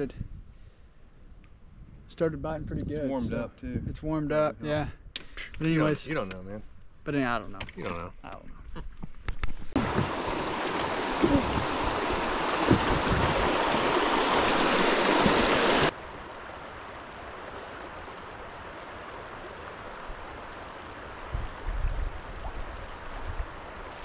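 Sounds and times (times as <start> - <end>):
quiet steady water flow: 4.3 - 24.0
low bumps: 8.8 - 15.9
rushing river water: 9.7 - 24.0.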